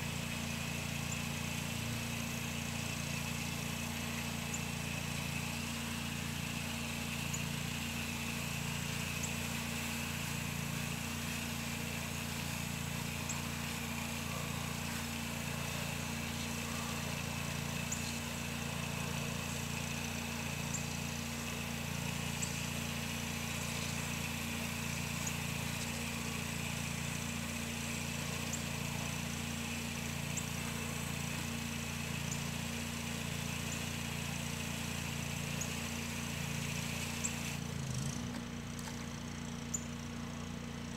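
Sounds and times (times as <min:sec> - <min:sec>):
pressure washer engine running: 0:00.0 - 0:40.9
water spray hissing: 0:05.0 - 0:37.6.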